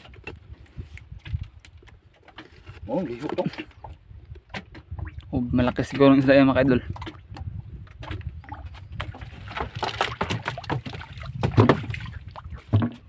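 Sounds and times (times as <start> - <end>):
knocks on wooden canoe: 9.0 - 13.0.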